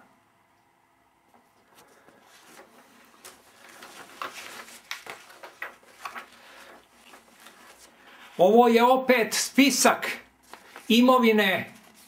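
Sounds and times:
paper sheets rustling: 1.6s - 8.5s, 9.7s - 12.0s.

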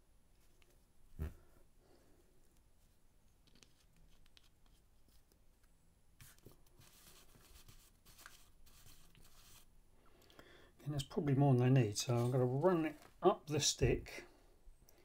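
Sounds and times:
scratchy rubbing: 6.2s - 9.7s.

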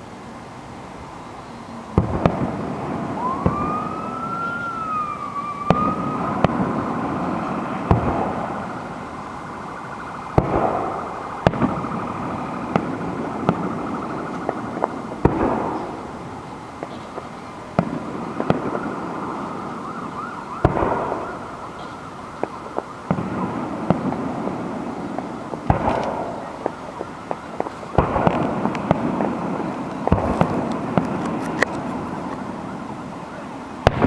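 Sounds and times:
background hiss: 0.0s - 34.0s
fireworks crackling: 0.0s - 34.0s
fireworks booming: 1.9s - 34.0s.

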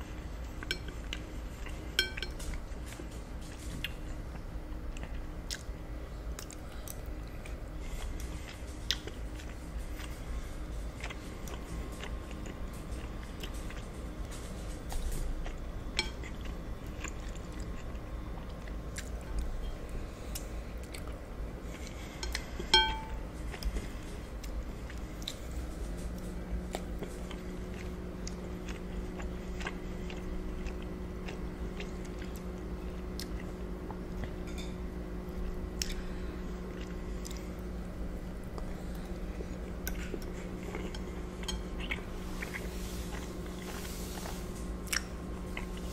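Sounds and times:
steady low hum: 0.0s - 45.9s
chewing and wet mouth sounds: 0.4s - 34.7s, 35.3s - 45.9s
fork touching a bowl: 22.8s - 23.2s.

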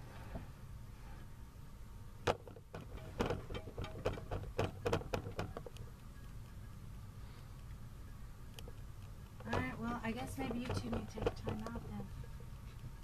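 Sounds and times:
low steady hum: 0.0s - 13.0s
irregular clicks and taps: 2.2s - 6.4s, 10.4s - 11.9s.

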